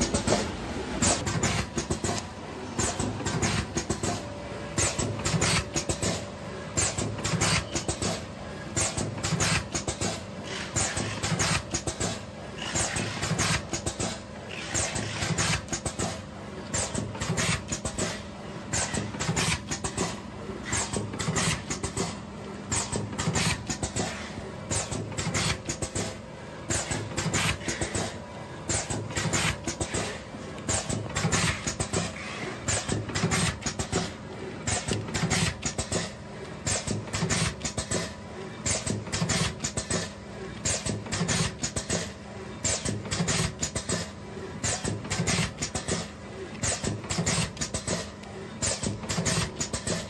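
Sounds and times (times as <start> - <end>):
packaging machine jaws clacking: 24.7 - 50.0.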